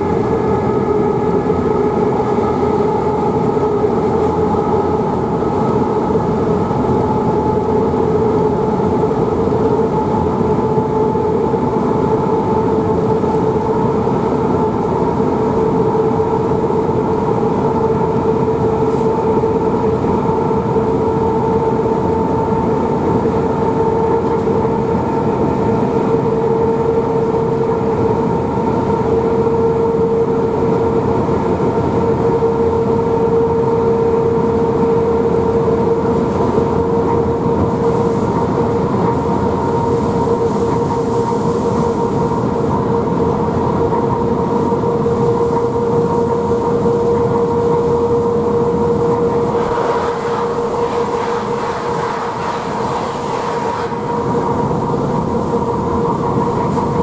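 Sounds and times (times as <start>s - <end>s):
locomotive wheels on rails: 0.0s - 57.0s
steady whine: 0.0s - 57.0s.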